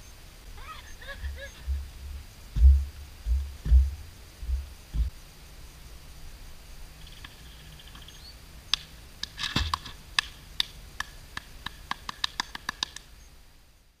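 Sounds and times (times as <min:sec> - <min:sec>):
person clapping hands: 0:09.2 - 0:13.1.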